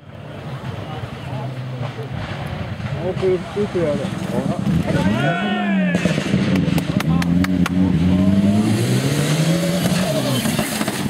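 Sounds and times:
rally car engine running hard: 3.8 - 11.0.

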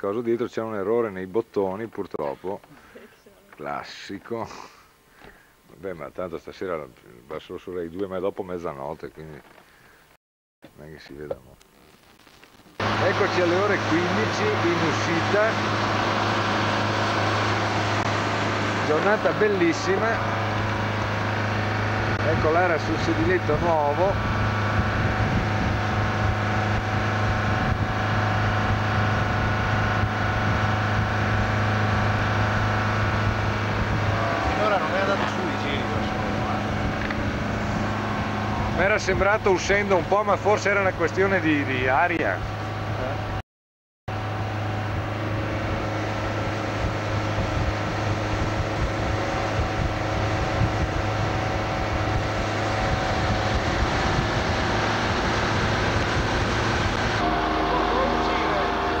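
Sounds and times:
boat diesel engine hum: 12.8 - 43.4, 44.1 - 59.0.

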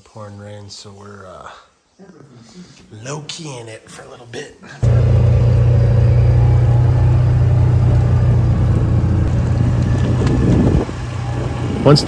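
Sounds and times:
vehicle engine drone: 4.8 - 12.0.

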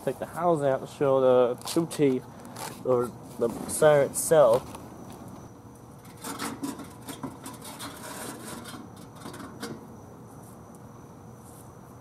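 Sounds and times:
metal housing scraping and knocking: 6.0 - 9.9.

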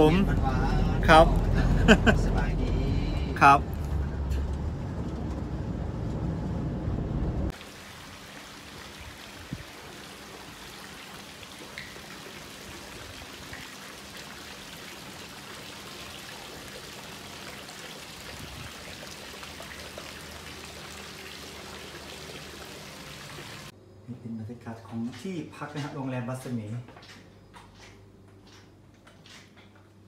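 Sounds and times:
light rain falling: 0.0 - 23.7.

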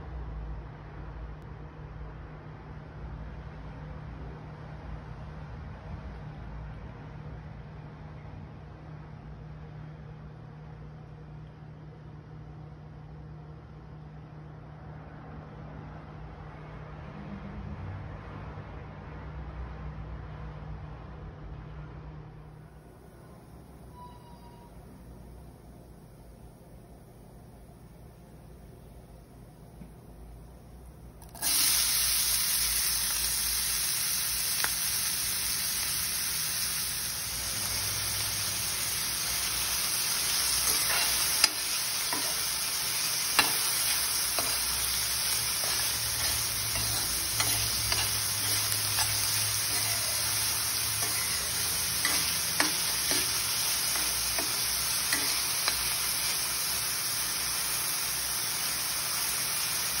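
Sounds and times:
onions sizzling in oil: 31.2 - 60.0
metal spoon clicking on pan: 40.6 - 42.4, 43.4 - 44.6, 45.6 - 50.4, 51.0 - 56.0.

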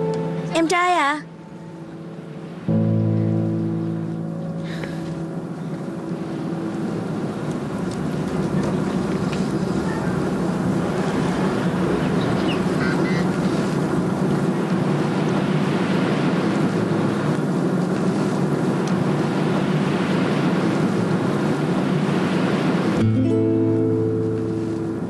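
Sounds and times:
guitar music: 0.0 - 8.9, 23.0 - 25.0
vehicle engine and road noise: 0.0 - 25.0.

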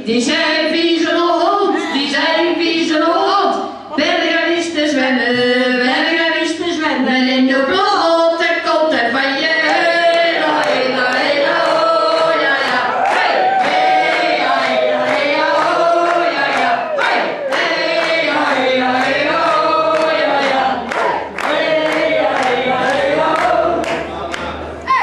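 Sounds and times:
crowd singing along: 9.0 - 25.0
regular beat: 10.5 - 24.7.

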